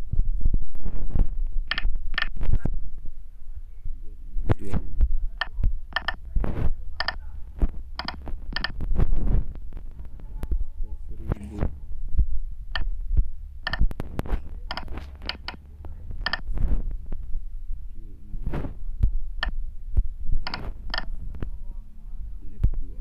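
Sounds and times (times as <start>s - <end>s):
low steady hum: 0.0s - 23.0s
soft rustling: 5.5s - 12.4s, 13.1s - 19.2s.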